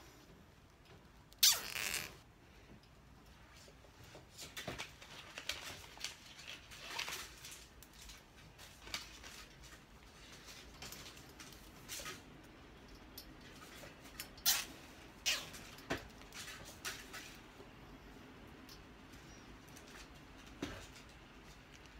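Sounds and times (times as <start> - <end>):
cable tie zipping tight: 1.4 - 2.2.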